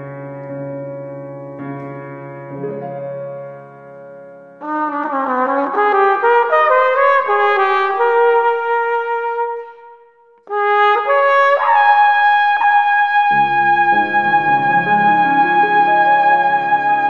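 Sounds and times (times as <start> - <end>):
flugelhorn playing slow melody: 4.6 - 17.0.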